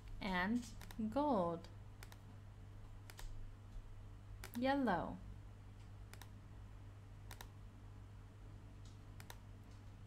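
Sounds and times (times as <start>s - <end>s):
low electrical hum: 0.0s - 10.0s
computer mouse clicks: 0.6s - 1.0s, 2.0s - 2.3s, 3.0s - 3.4s, 4.4s - 4.7s, 6.1s - 6.4s, 7.3s - 7.6s, 8.8s - 9.9s.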